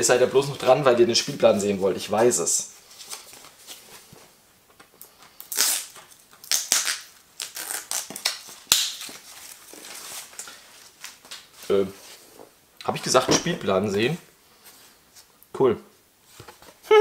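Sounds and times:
cardboard and plastic rustling: 7.6s - 12.5s.

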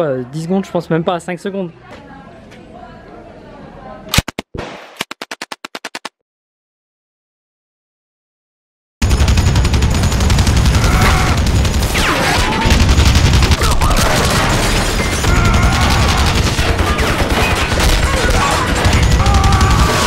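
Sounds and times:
machine-gun fire: 9.0s - 20.0s.

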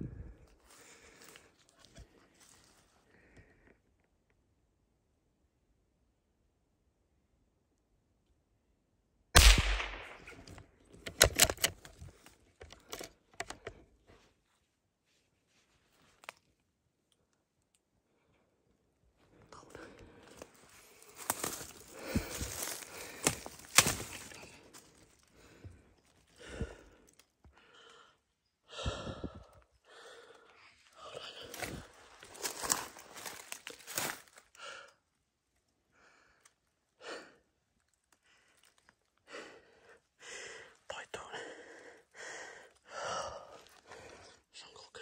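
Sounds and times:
gunshot: 9.4s - 10.5s
sharp cracks: 9.4s - 11.9s, 21.2s - 24.5s.

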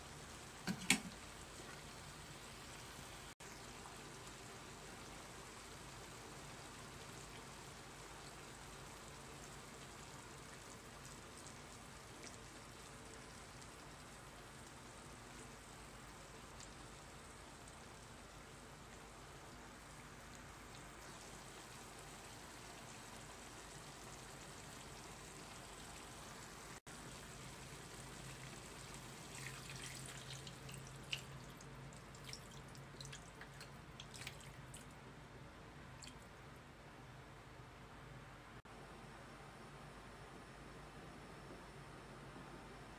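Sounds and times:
water pouring into a frying pan: 27.1s - 34.8s.

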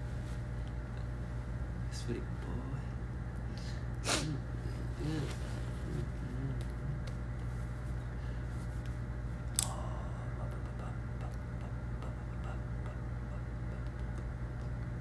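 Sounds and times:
low room hum: 0.0s - 15.0s.

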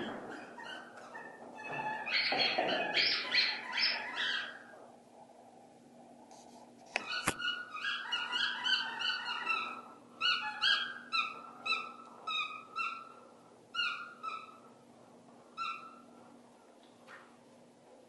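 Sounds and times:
dog whining in high yelps: 0.4s - 4.7s, 7.0s - 13.2s.

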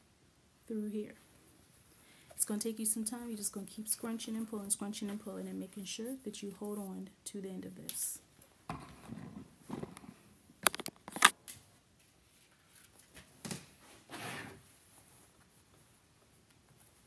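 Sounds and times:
cloth rustling: 12.0s - 17.0s.

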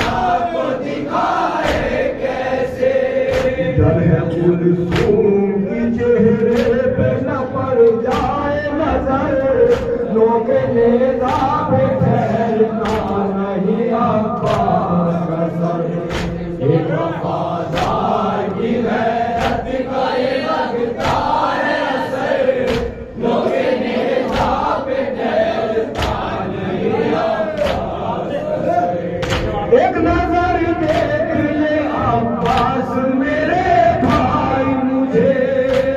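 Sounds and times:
men chanting through microphones: 0.0s - 35.9s
chest-beating slaps: 1.2s - 2.3s, 3.1s - 3.9s, 4.9s - 5.3s, 6.3s - 6.9s, 7.8s - 8.5s, 9.4s - 10.2s, 11.2s - 12.2s, 12.8s - 13.2s, 14.4s - 14.9s, 16.1s - 16.6s, 17.3s - 19.8s, 20.9s - 21.6s, 22.2s - 23.4s, 24.2s - 24.8s, 25.8s - 26.4s, 27.5s - 28.1s, 29.2s - 29.7s, 32.4s - 32.8s, 35.3s - 35.9s.

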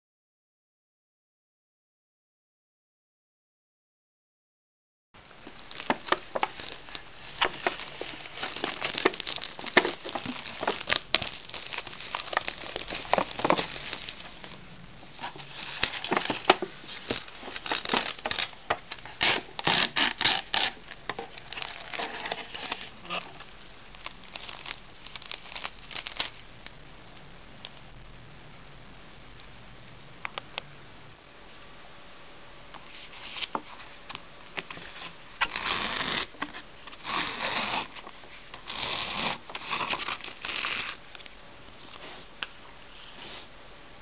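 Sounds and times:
plastic packets rustling: 5.2s - 26.8s, 32.9s - 42.4s
plastic wrap crinkling and tearing: 5.2s - 27.9s, 32.9s - 43.3s.

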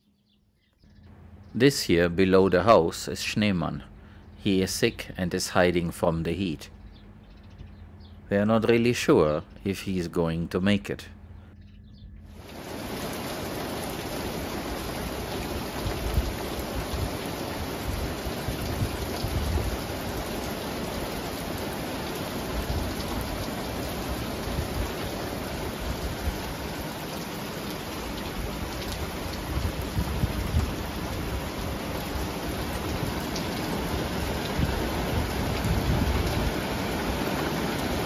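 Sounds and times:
steady rain pouring: 12.3s - 38.0s.

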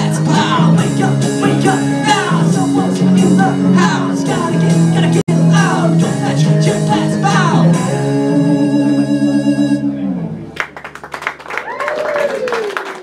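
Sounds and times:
sung vocals: 0.0s - 10.1s
new-wave band playing: 0.0s - 10.8s.

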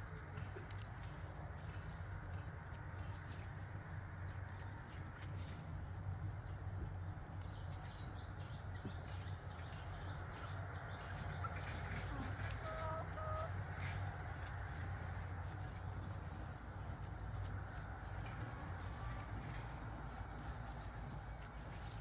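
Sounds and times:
hen clucking: 9.7s - 15.7s.

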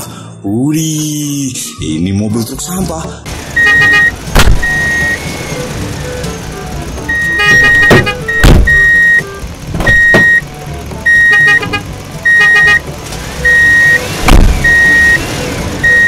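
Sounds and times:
truck engine rumble: 2.9s - 16.0s
garbage truck warning beeps: 3.6s - 5.6s, 7.0s - 12.8s, 13.4s - 16.0s
trash cart and arm knocking: 7.5s - 9.0s, 9.7s - 10.4s, 14.2s - 14.8s.

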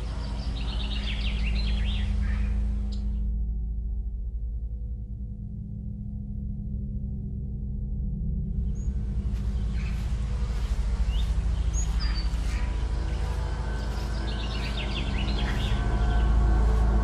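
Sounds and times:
birds chirping: 0.0s - 3.2s, 8.6s - 17.0s
low steady drone: 0.0s - 17.0s.

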